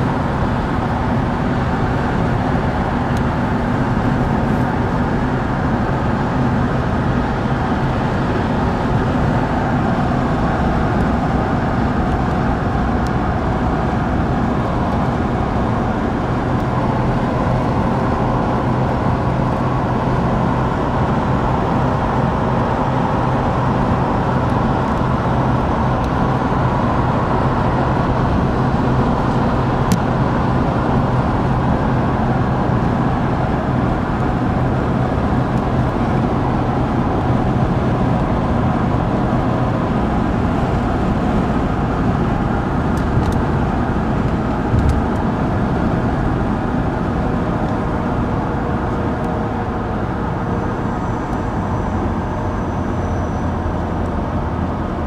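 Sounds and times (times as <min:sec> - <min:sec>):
car engine hum: 0:00.0 - 0:55.0
road and tyre noise: 0:00.0 - 0:55.0.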